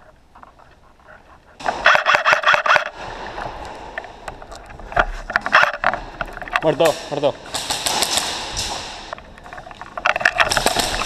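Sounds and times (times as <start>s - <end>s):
airsoft rifle burst: 1.6s - 3.2s, 10.0s - 11.0s.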